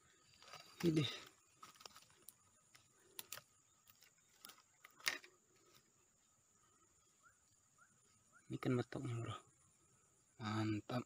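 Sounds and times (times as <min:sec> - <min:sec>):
faint handling clicks and rustles: 0:00.2 - 0:06.1.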